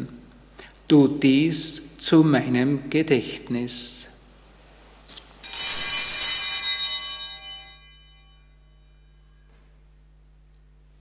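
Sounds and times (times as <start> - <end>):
altar bells ringing: 5.4 - 9.4.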